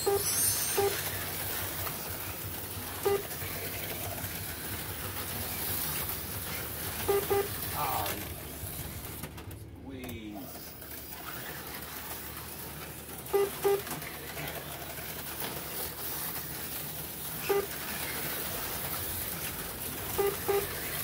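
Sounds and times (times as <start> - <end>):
short electronic beeps: 0.0 - 1.0, 7.1 - 7.5, 13.3 - 13.8, 20.2 - 20.8
slot cars whirring: 0.0 - 21.0.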